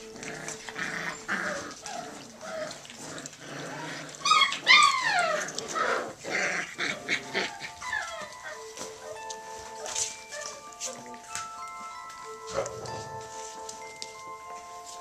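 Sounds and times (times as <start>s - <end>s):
puppies growling: 0.0s - 15.0s
puppy whining: 0.0s - 15.0s
puppy yelp: 3.8s - 11.2s.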